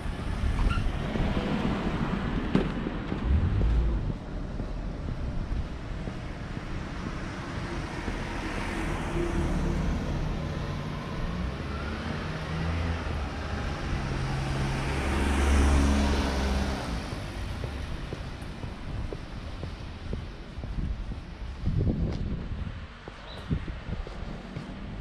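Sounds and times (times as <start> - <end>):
car driving past: 3.1 - 4.2, 8.3 - 17.6.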